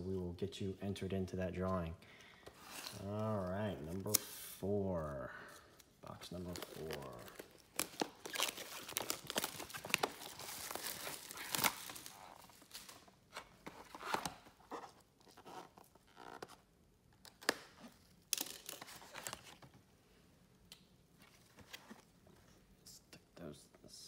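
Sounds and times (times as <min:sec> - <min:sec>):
crinkles and clicks: 0:05.8 - 0:19.8
plastic wrap tearing and crumpling: 0:06.2 - 0:13.2, 0:17.3 - 0:19.6.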